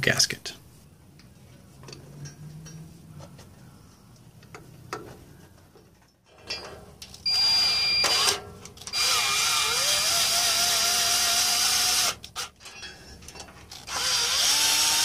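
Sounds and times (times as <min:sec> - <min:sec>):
power drill whining: 0:07.2 - 0:12.6, 0:13.7 - 0:15.0.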